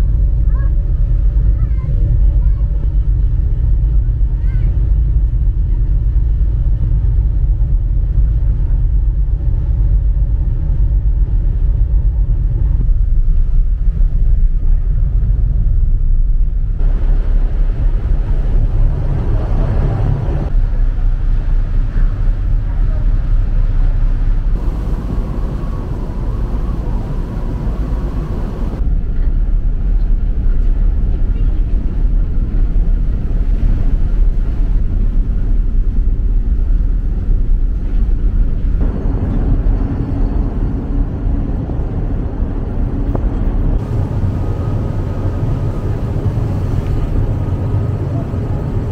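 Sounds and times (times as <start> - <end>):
ferry engine rumble: 0.0 - 48.9
rushing noise: 16.5 - 22.6, 24.5 - 29.1, 38.7 - 48.9.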